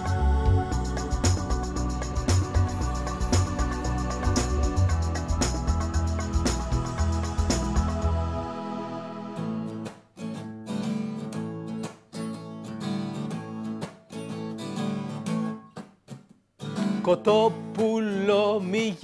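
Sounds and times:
acoustic guitar strumming: 0.0s - 19.0s
man singing: 17.0s - 19.0s.

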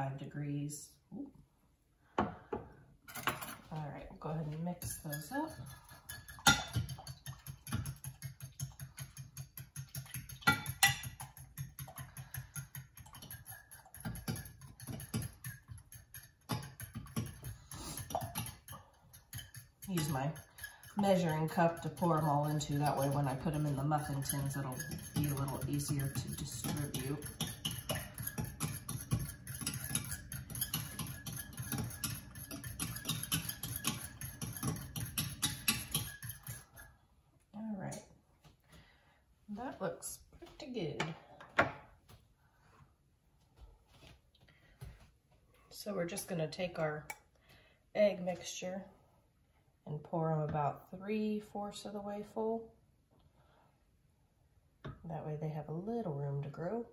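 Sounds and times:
whisk clicking against glass bowl: 6.1s - 36.9s.

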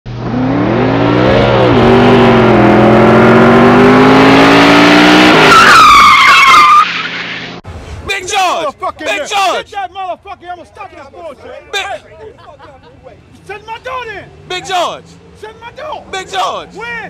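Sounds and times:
race car engine revving: 0.1s - 5.9s
tire screech: 0.2s - 8.3s.

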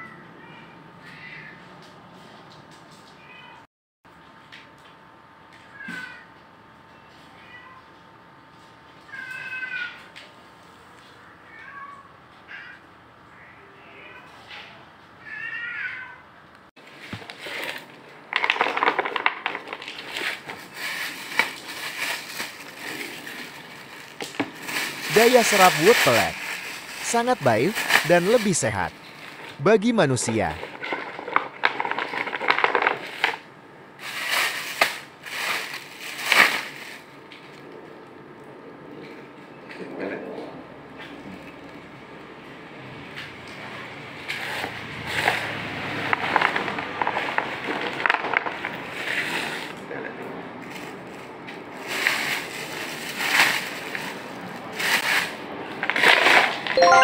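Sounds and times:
cat litter pellets crunching: 16.9s - 29.6s, 30.4s - 37.2s, 45.0s - 49.8s, 50.6s - 56.7s.

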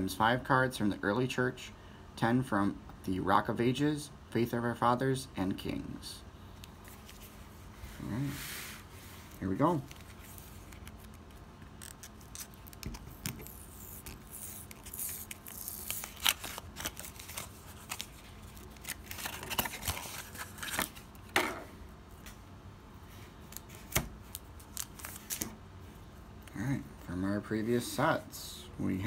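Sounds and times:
paper wrapper tearing: 9.9s - 21.1s, 24.3s - 25.5s.

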